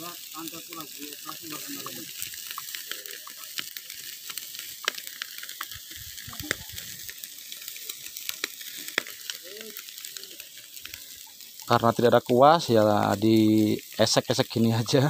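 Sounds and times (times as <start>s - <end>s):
fish sizzling on grill: 0.0s - 15.0s
sharp crackles: 0.0s - 15.0s.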